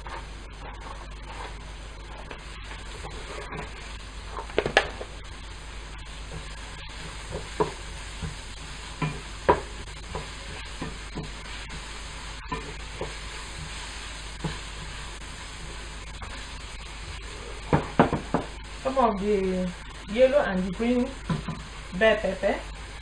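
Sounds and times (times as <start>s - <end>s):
wooden spatula scraping pan: 0.0s - 5.1s
vegetables sizzling in frying pan: 0.0s - 23.0s.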